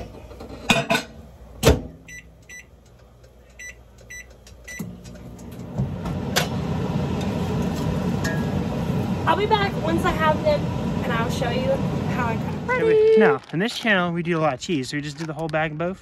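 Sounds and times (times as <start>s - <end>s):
microwave oven humming: 0.0s - 13.4s
keypad beeps: 2.1s - 2.7s, 3.6s - 4.9s.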